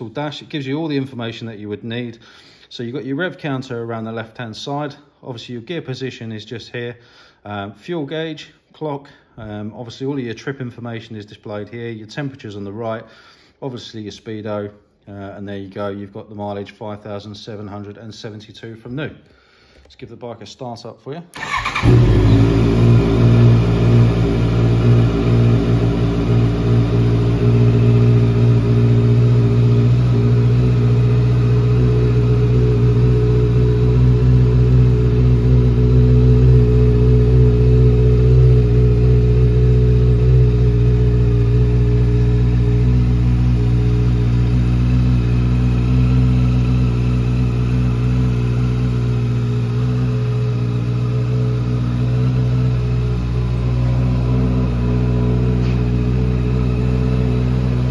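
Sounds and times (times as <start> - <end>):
motorcycle engine idling: 21.4 - 57.9.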